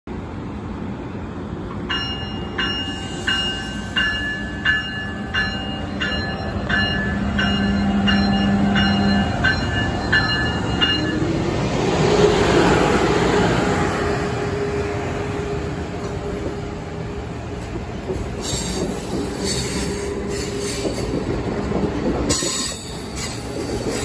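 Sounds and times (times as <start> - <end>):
train electric whine and rumble: 0.1 - 24.0
train bell ringing: 1.9 - 11.4.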